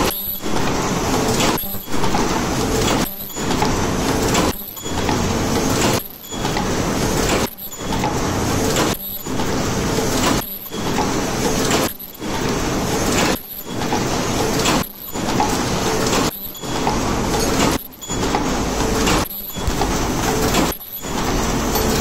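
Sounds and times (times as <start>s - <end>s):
paper cup machine running: 0.0s - 22.0s.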